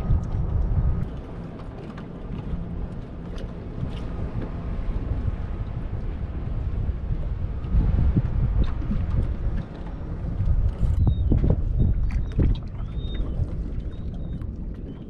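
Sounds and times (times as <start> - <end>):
wind rumbling on microphone: 0.0 - 15.0.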